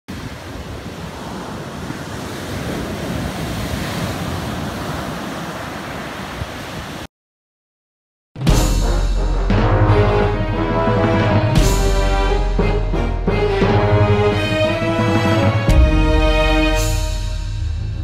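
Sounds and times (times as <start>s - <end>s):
surf washing onto sand: 0.1s - 7.1s
loud music: 8.4s - 18.0s.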